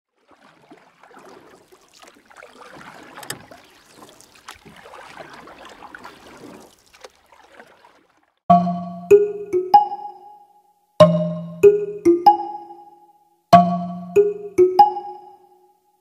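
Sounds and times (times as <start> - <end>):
water splashing and lapping: 0.1 - 8.4.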